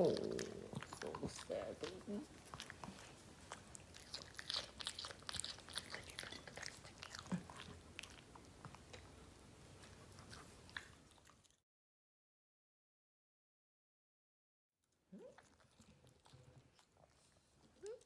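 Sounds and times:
dog crunching vegetable: 0.0 - 9.2, 9.8 - 11.6, 15.1 - 18.0.

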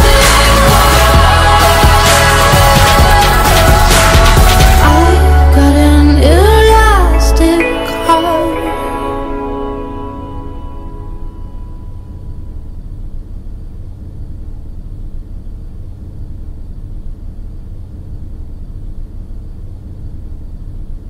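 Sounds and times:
song's last note: 0.0 - 12.6
low rumble of background noise: 9.9 - 21.0.

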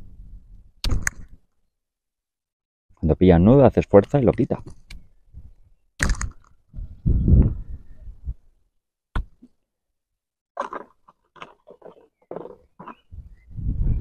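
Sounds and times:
sharp click: 0.8 - 1.4, 6.0 - 6.5.

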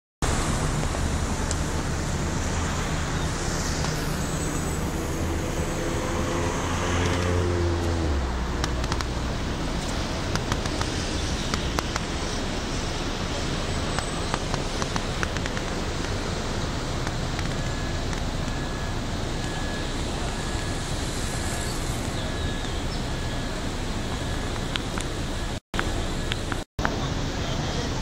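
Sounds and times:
higher engine hum: 0.2 - 28.0
street traffic: 0.2 - 28.0
diesel engine idling: 7.8 - 27.6
sharp clicks: 8.6 - 9.2, 9.8 - 12.2, 13.9 - 16.2.

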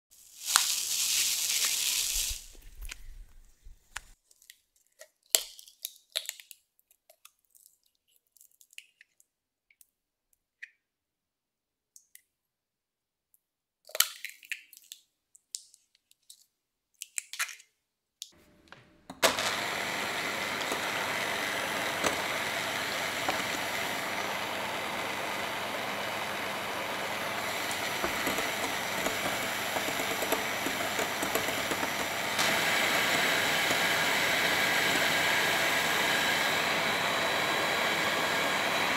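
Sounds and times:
electric hand mixer whipping: 18.4 - 38.9.

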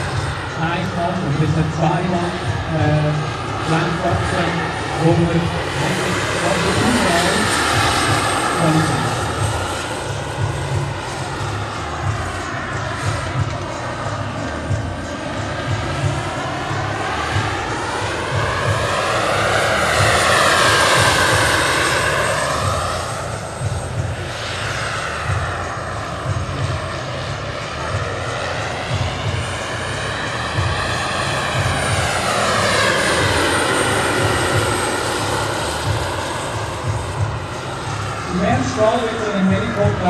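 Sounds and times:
model helicopter flying past: 0.0 - 40.0.

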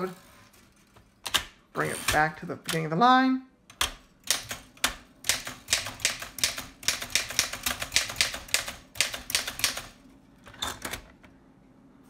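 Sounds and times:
typewriter keys clacking: 3.7 - 10.0.

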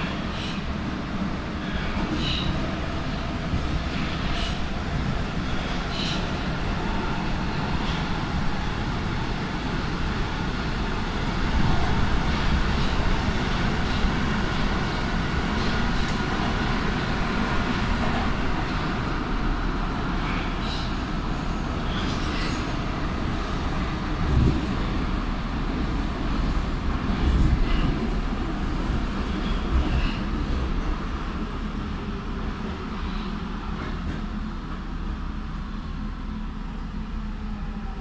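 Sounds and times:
train wheels running on rail: 0.0 - 38.0.

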